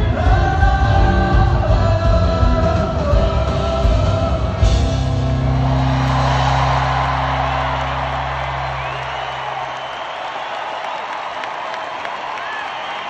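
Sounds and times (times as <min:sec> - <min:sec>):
lead singer singing: 0:00.0 - 0:05.1
live rock band: 0:00.0 - 0:09.4.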